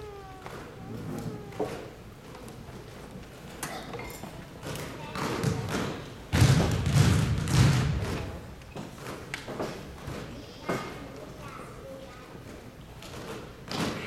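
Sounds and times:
basketballs bouncing on gym floor: 0:04.6 - 0:10.3.

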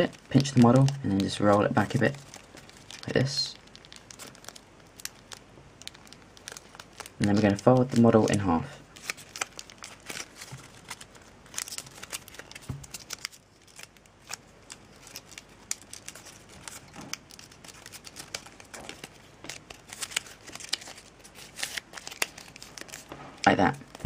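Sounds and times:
paper crinkling as folded: 0:00.0 - 0:24.0.

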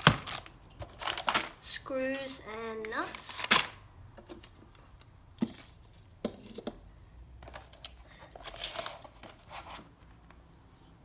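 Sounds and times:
plastic and paper crinkling: 0:00.0 - 0:01.8, 0:07.5 - 0:10.4.

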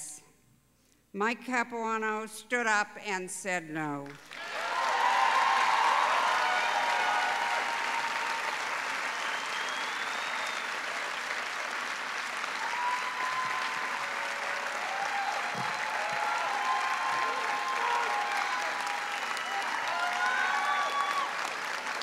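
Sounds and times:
audience applauding: 0:04.1 - 0:22.0
voices cheering: 0:04.4 - 0:11.0, 0:12.4 - 0:21.8.

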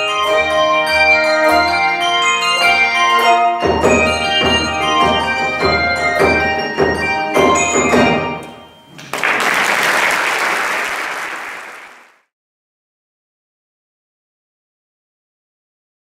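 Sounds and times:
handbell chords ringing: 0:00.0 - 0:08.9
audience applause: 0:09.0 - 0:12.3.

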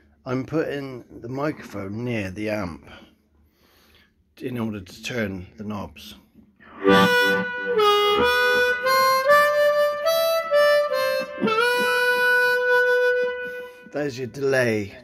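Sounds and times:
amplified harmonica with delay: 0:06.7 - 0:14.4.

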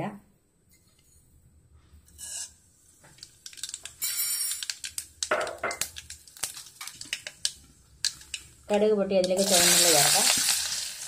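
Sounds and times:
seeds sizzling and popping in oil: 0:02.1 - 0:11.0.

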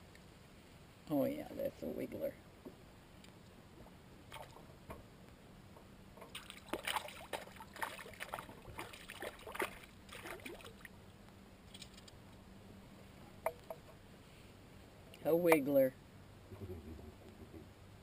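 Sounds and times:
fish splashing in water: 0:06.2 - 0:10.9.

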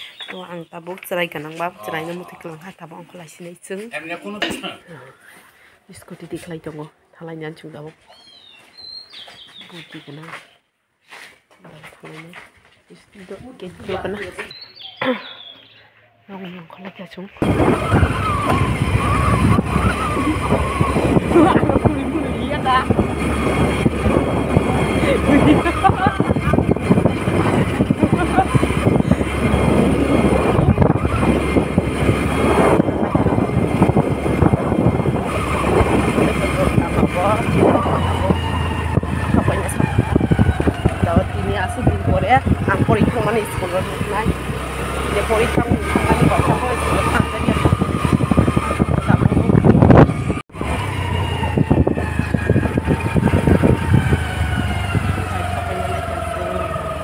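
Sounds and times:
road noise: 0:00.0 - 0:57.0
wind buffeting microphone: 0:13.2 - 0:15.0, 0:17.0 - 0:57.0
motorbike engine: 0:17.4 - 0:57.0.

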